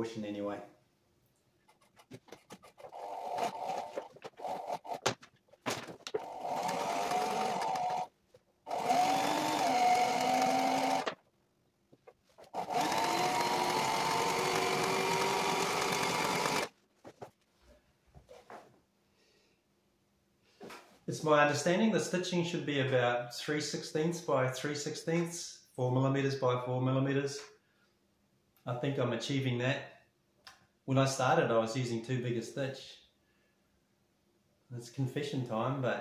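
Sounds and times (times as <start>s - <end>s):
sewing machine stitching: 2.4s - 5.1s, 6.1s - 8.1s, 8.7s - 11.2s, 12.4s - 16.7s.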